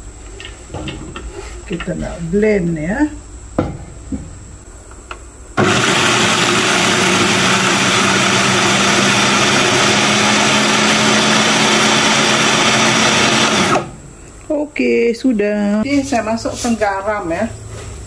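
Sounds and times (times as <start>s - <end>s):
food processor whirring: 5.6s - 14.0s.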